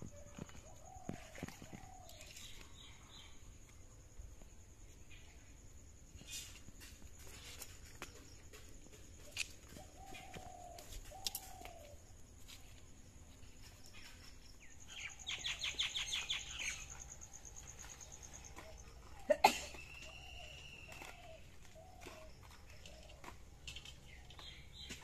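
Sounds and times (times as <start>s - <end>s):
birds chirping: 13.4s - 25.0s.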